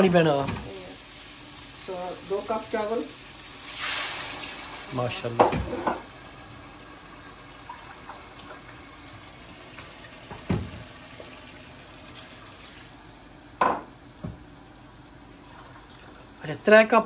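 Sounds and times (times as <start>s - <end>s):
water pouring: 11.2s - 13.0s, 15.4s - 16.4s.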